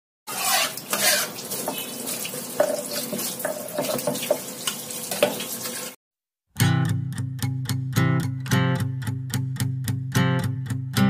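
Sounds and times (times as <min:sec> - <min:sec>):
water running and splashing: 0:00.3 - 0:06.0.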